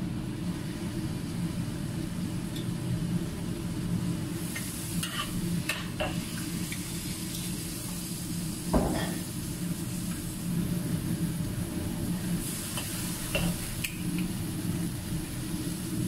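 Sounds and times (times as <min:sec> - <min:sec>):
food sizzling in a wok: 0:00.2 - 0:16.0
metal clank on wok: 0:08.8 - 0:09.2.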